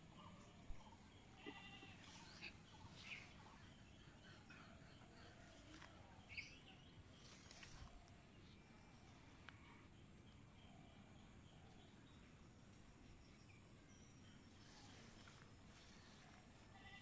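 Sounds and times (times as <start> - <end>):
rural ambience: 0.0 - 17.0
faint animal calls: 0.9 - 6.3.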